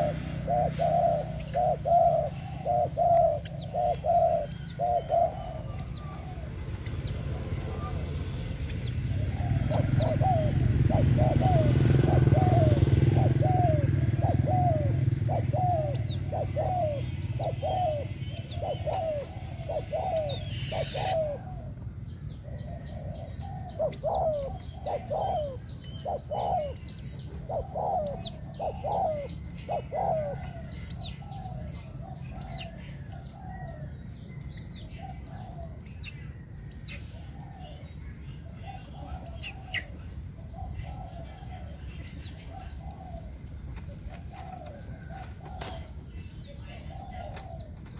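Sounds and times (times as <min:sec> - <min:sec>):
dove cooing: 0:00.0 - 0:47.9
small birds chirping: 0:00.0 - 0:47.9.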